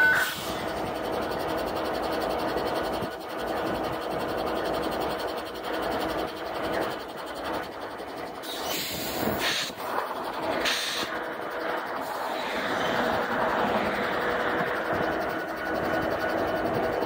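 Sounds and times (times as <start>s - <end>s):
diesel locomotive idling: 0.0s - 17.0s
air hissing bursts: 8.5s - 9.8s, 10.6s - 11.1s.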